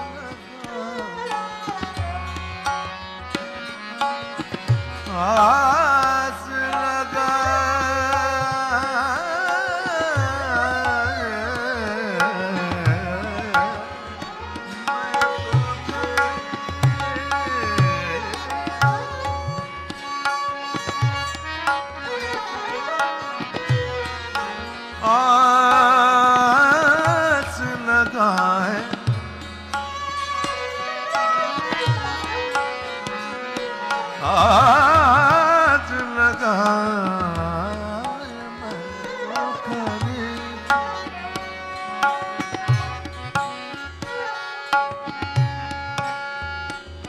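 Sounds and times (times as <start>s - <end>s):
man singing ornamented melody: 0.0s - 2.4s, 5.0s - 19.5s, 24.4s - 29.3s, 33.9s - 41.4s
tabla: 0.0s - 47.0s
tanpura drone: 0.0s - 47.0s.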